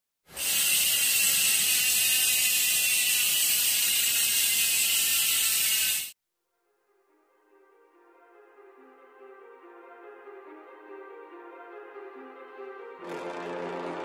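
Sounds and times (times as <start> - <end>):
high-pitched mechanical ratcheting whir: 0.3 - 6.2.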